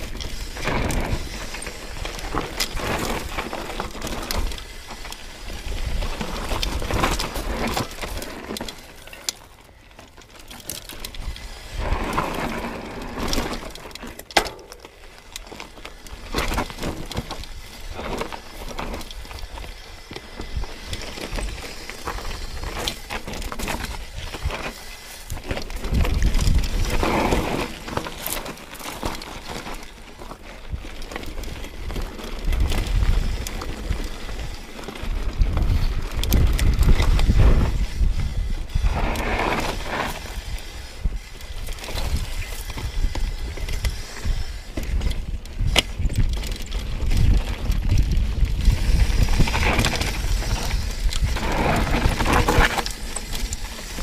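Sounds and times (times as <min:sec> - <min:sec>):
bike rattling over bumps: 0:00.0 - 0:54.0
tyres rolling over dirt and stones: 0:00.0 - 0:54.0
wind buffeting microphone: 0:16.2 - 0:27.6, 0:31.7 - 0:54.0.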